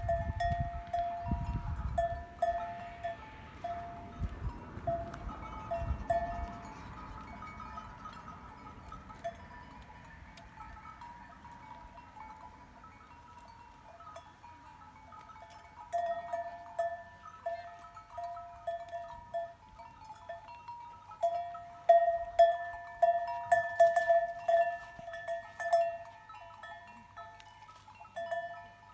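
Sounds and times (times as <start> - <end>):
bells ringing: 0.0 - 28.9.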